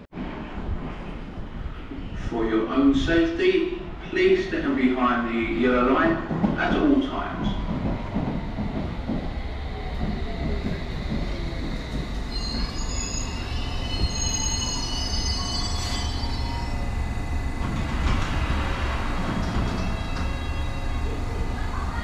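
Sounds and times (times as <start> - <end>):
train rumble: 0.0 - 22.0
train brakes squealing: 11.3 - 17.6, 19.5 - 21.2.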